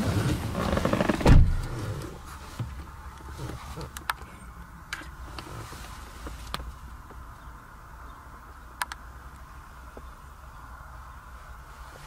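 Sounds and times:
engine idling hum in cabin: 0.0 - 12.0
sharp clicks: 3.9 - 4.3, 8.8 - 9.5.

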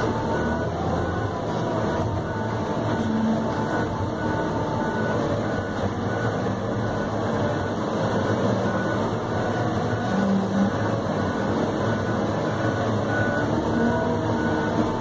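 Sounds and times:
diesel engine running steadily: 0.0 - 15.0.

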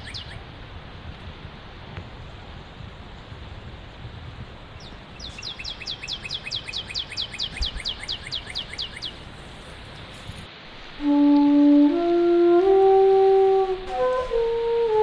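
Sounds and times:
bird singing whistled notes: 0.0 - 0.4, 4.8 - 9.2.

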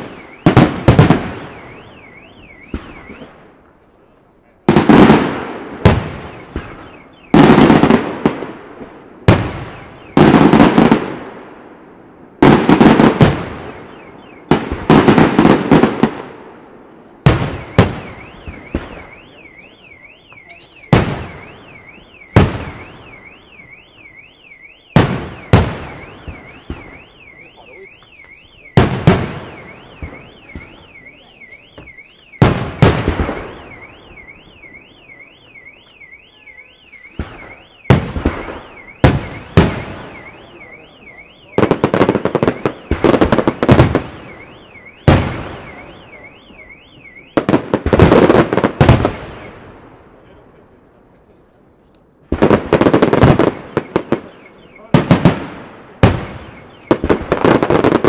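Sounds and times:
warbling electronic alarm: 0.0 - 3.5, 17.4 - 48.7, 52.8 - 55.3, 56.2 - 58.0.

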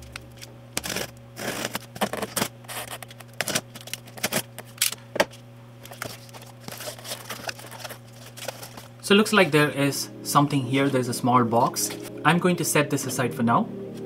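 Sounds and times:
box cutter slicing cardboard: 0.8 - 3.6.

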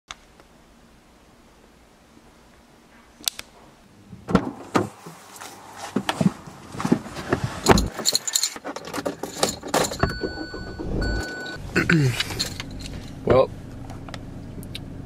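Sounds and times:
car door and seat thumps: 4.2 - 5.0.

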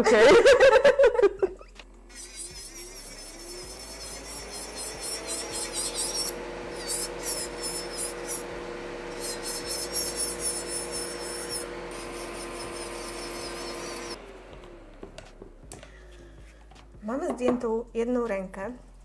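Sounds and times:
drill bit rasping on nail: 2.1 - 14.2
nail drill motor whine: 2.1 - 15.9.

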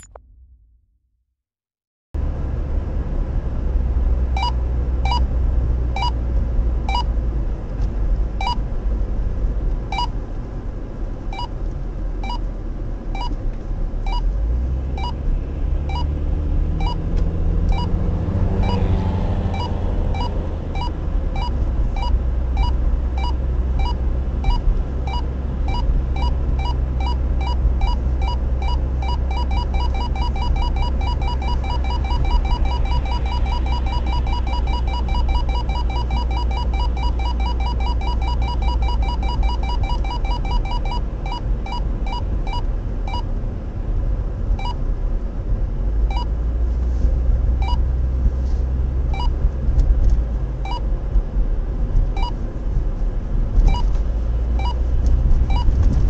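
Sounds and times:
radar detector beeping: 4.4 - 5.3, 6.0 - 6.2, 6.9 - 7.1, 9.9 - 10.1, 16.8 - 17.0, 17.7 - 18.0, 18.6 - 18.8, 19.5 - 43.3, 44.6 - 44.8, 47.6 - 47.8, 50.6 - 50.8, 52.2 - 52.4, 53.7 - 53.9, 54.6 - 54.8, 55.5 - 55.7
car cabin rumble: 16.7 - 56.0.

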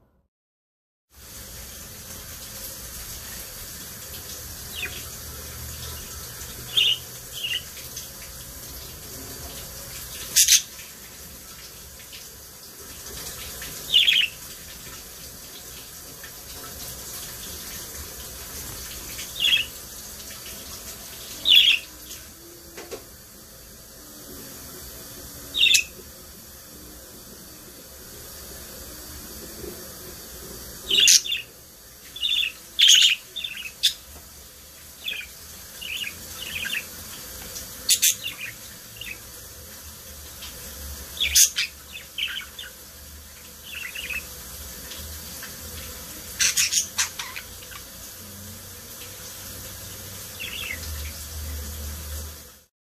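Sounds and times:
steady hiss: 1.2 - 52.7
budgerigars chirping: 6.7 - 7.7, 10.3 - 10.7, 13.9 - 14.4, 19.3 - 19.7, 21.5 - 21.9, 25.6 - 25.9, 30.9 - 31.5, 32.2 - 34.0, 35.0 - 36.9, 41.2 - 42.8, 43.6 - 44.3, 46.4 - 47.8, 50.4 - 50.8.

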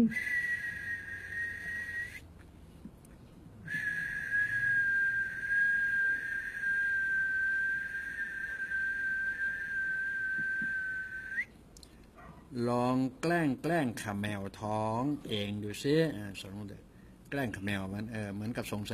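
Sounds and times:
person whistling high note: 0.0 - 2.2, 3.7 - 11.5.

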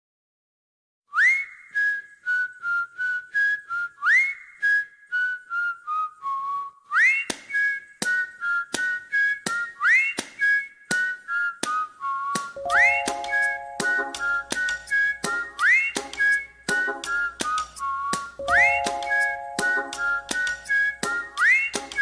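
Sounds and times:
whistled tune: 1.1 - 22.0
percussive beats: 12.7 - 21.2.

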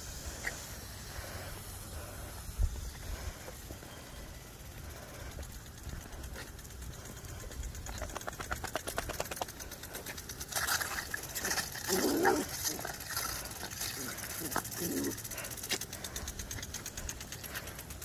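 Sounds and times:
lawn sprinkler spraying and ticking: 0.0 - 18.0
low growl: 10.0 - 16.7.

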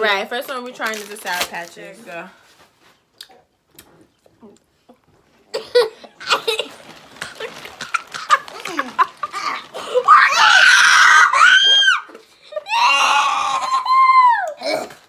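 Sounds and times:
girls laughing: 5.6 - 10.6
girls screaming: 9.2 - 14.6.

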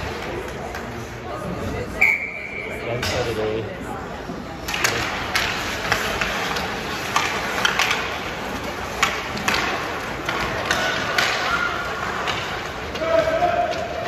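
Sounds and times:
hockey sticks clacking: 0.0 - 1.6, 2.9 - 3.4, 4.2 - 14.0
rink hubbub: 0.0 - 14.0
skates scraping ice: 4.3 - 14.0.

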